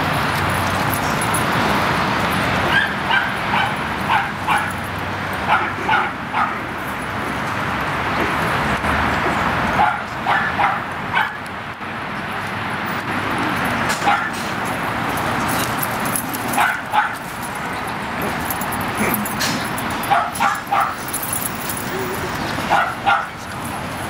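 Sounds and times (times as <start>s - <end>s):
dogs yipping: 2.6s - 6.7s, 9.8s - 11.4s, 13.9s - 14.6s, 15.5s - 23.6s.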